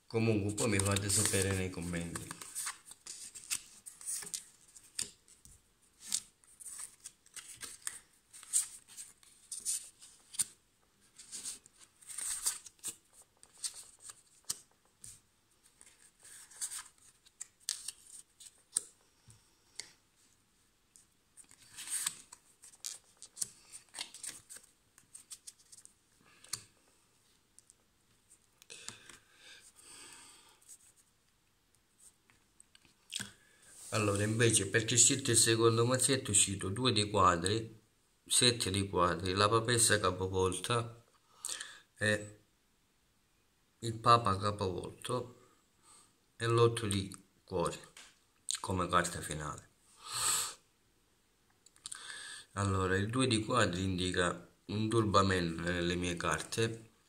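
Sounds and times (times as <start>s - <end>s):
cards being shuffled: 0.6s - 19.0s, 21.4s - 26.8s.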